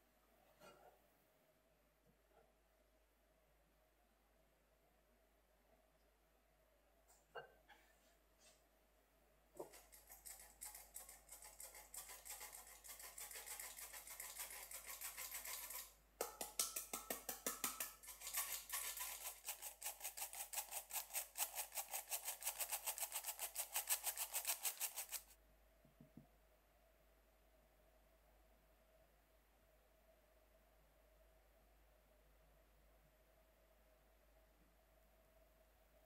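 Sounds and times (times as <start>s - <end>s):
flour sifter rasping and clicking: 9.6s - 25.4s.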